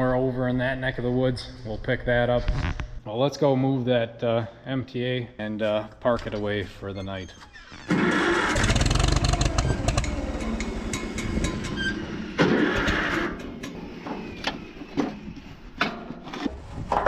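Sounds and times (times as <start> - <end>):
tractor engine starting and running: 7.6 - 16.2.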